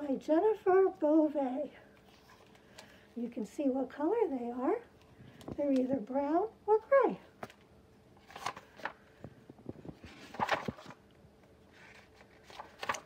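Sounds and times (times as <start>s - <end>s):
book pages rustling: 2.0s - 3.0s, 7.4s - 13.0s.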